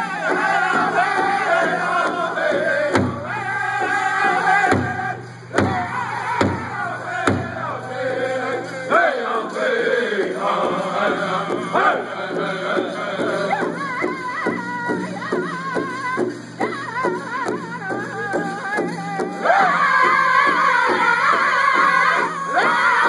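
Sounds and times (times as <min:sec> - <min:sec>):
group of singers chanting: 0:00.0 - 0:14.6, 0:19.2 - 0:23.0
large drum steady beat: 0:00.0 - 0:23.0.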